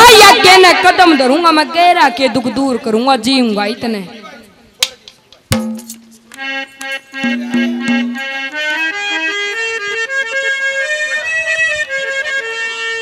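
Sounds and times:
harmonium-toned keyboard melody: 0.0s - 3.9s, 6.0s - 13.0s
light drum strokes: 4.8s - 8.5s.

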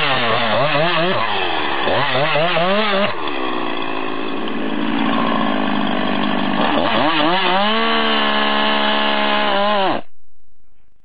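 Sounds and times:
chainsaw revving: 0.0s - 10.0s.

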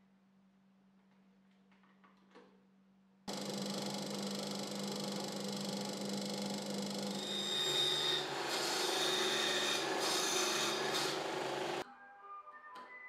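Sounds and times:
benchtop saw cutting wood: 3.3s - 11.8s
drill press whining: 3.3s - 11.8s.

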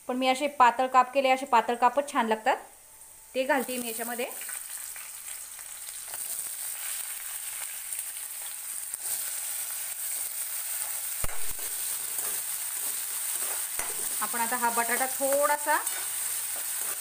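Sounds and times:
potatoes sizzling in oil: 0.0s - 17.0s
steel spoon stirring in metal pan: 10.0s - 17.0s
sharp knock: 11.2s - 11.6s.

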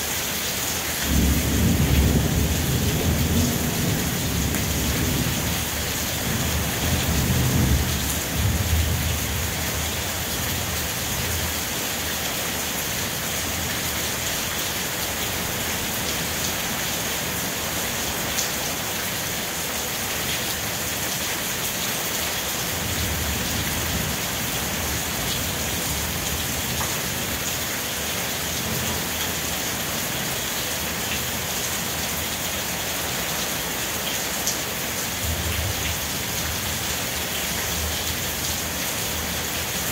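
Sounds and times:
steady rain falling: 0.0s - 39.9s
low rumbles of thunder: 1.1s - 9.5s.

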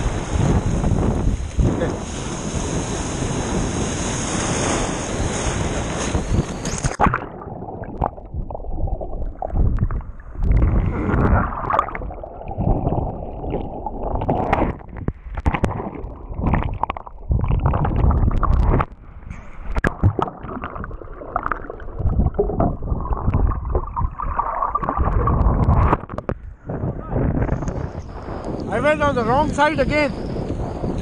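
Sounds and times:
surf breaking: 0.0s - 9.8s, 10.4s - 26.3s
wind: 0.0s - 31.0s
underwater sloshing and gurgling: 4.5s - 26.8s.

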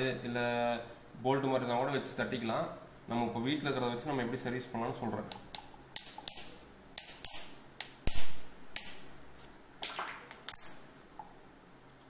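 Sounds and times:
metal tool tapping steel jar: 5.3s - 7.5s, 10.3s - 10.9s.

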